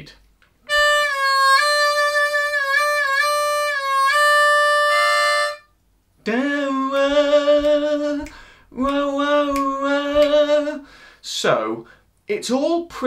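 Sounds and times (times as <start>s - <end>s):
harmonica bent notes: 0.7s - 5.8s
man singing wordlessly: 6.2s - 13.0s.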